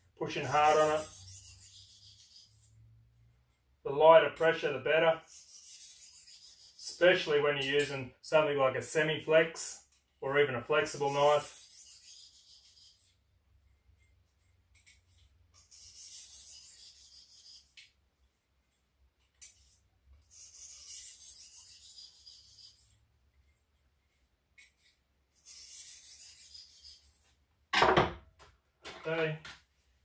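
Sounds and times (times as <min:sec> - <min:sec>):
sharpening stone on knife edge: 0:00.4 - 0:02.8, 0:05.2 - 0:07.0, 0:10.9 - 0:13.2, 0:15.6 - 0:17.9, 0:20.3 - 0:23.0, 0:24.6 - 0:27.3.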